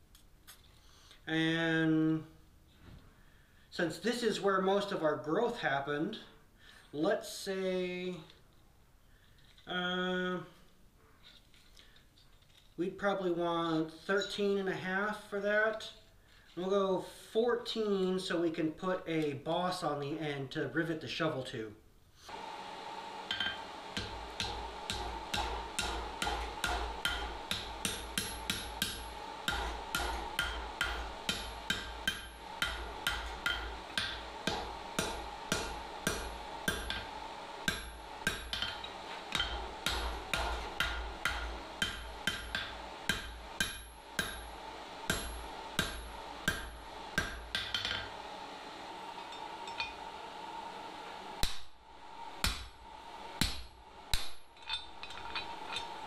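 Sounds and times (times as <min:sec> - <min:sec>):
hammer striking steel on anvil: 0:23.3 - 0:48.2, 0:52.4 - 0:52.8, 0:53.4 - 0:56.0.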